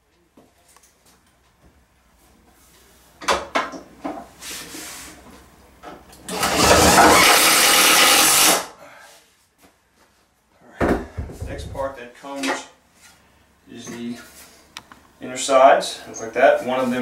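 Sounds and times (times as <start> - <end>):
cordless drill whirring: 6.3 - 8.6
handling knocks: 10.8 - 12.0.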